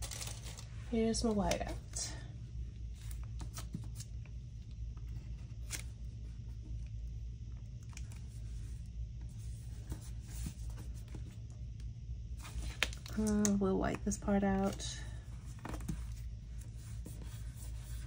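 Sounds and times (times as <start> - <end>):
paper and sticker sheets handled: 0.0 - 2.1, 12.4 - 18.0
steady low hum: 0.0 - 18.0.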